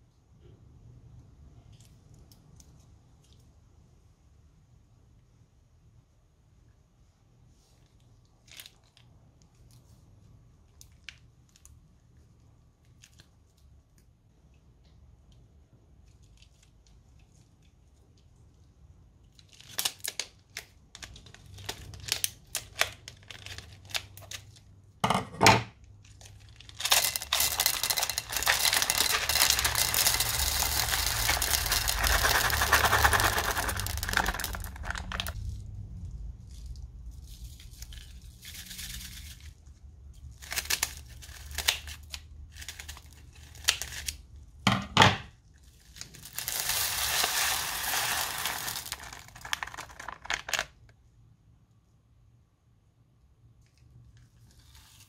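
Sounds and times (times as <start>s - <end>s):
plastic bag crinkling: 19.4s - 24.6s, 26.0s - 35.6s, 40.3s - 44.2s, 45.6s - 50.8s
plastic beads pouring into slime: 26.2s - 35.6s, 40.3s - 44.1s, 45.6s - 50.8s.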